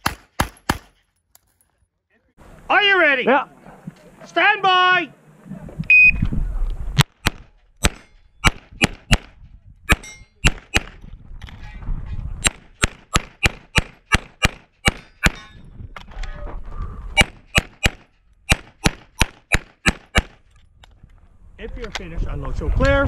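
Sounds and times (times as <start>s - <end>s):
pistol shots: 0.0s - 1.0s, 7.2s - 9.3s, 9.9s - 11.0s, 12.4s - 15.4s, 17.2s - 20.4s.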